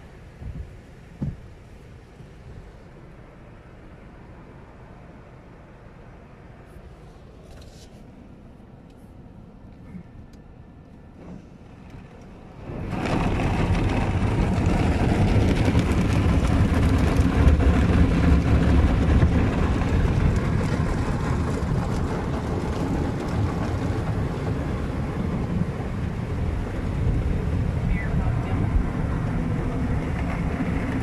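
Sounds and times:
water spray rushing on car: 11.2 - 31.0.

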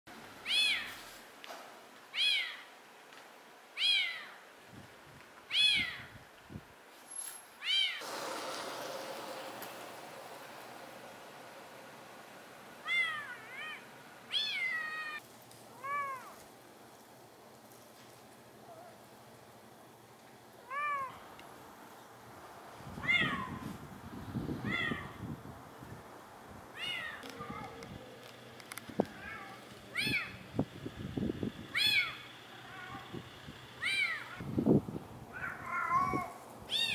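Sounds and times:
kitten meowing: 12.8 - 15.2, 35.4 - 36.9
cat meowing: 12.8 - 16.4, 20.7 - 21.2, 23.0 - 23.6, 26.8 - 27.7, 33.8 - 34.4, 35.3 - 36.9.

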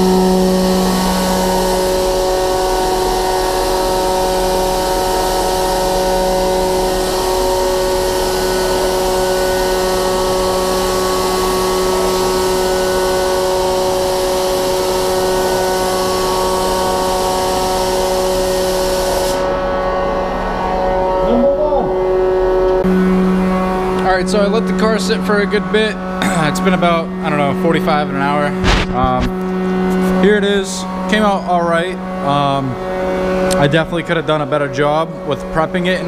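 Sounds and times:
spray gun air hiss: 0.0 - 19.5
ventilation hum: 0.0 - 36.0.

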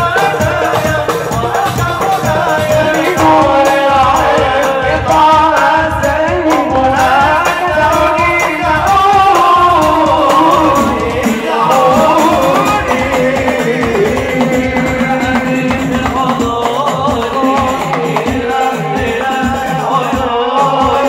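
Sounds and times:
frame drums beating: 0.0 - 21.0
men singing: 0.0 - 21.0.

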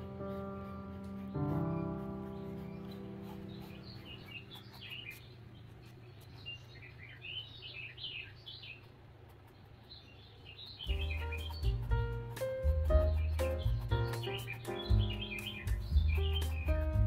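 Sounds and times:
held music chord: 0.0 - 5.0, 10.9 - 17.0
birds chirping: 0.0 - 17.0.

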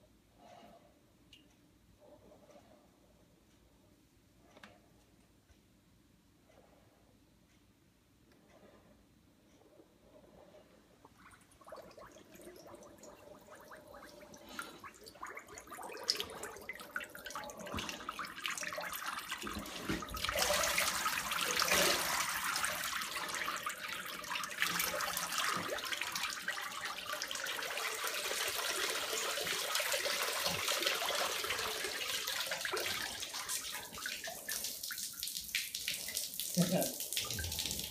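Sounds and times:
water sloshing and splashing: 10.6 - 37.9.

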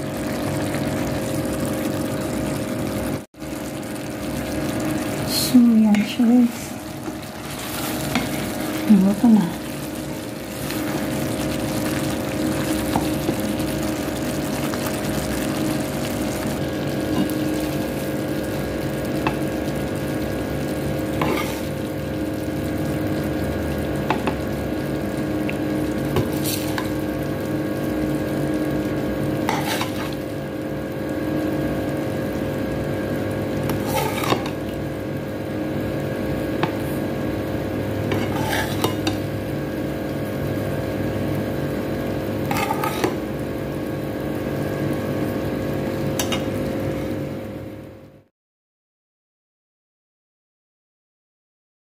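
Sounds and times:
sauce sizzling in a pot: 0.0 - 48.3
steady hum: 0.0 - 48.3
wooden spoon stirring: 7.0 - 18.1, 21.2 - 21.8, 29.5 - 30.2, 33.7 - 34.7, 38.1 - 39.2, 42.5 - 43.2.

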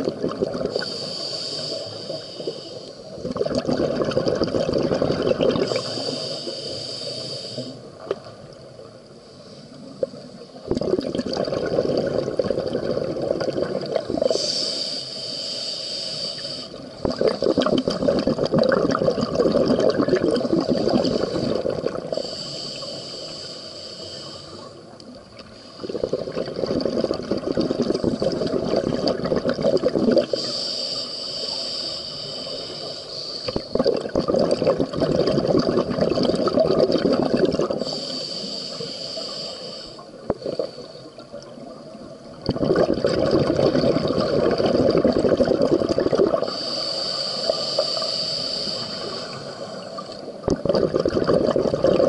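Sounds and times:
gurgling exhaled bubbles: 0.0 - 0.9, 3.2 - 6.1, 10.6 - 14.4, 16.9 - 22.2, 25.8 - 30.4, 33.5 - 37.9, 42.3 - 46.6, 49.0 - 52.0
hissing regulator inhales: 0.7 - 3.2, 5.7 - 7.9, 14.2 - 17.8, 21.0 - 24.9, 30.2 - 33.8, 37.8 - 41.2, 46.4 - 50.4.

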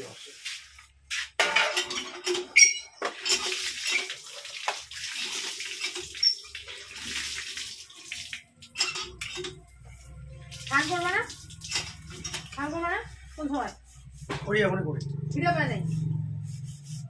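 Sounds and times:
scrubbing dishes: 0.3 - 7.3, 8.6 - 14.6
steel plates clinking: 1.4 - 2.9
water splashing: 3.1 - 8.8, 10.5 - 12.8.

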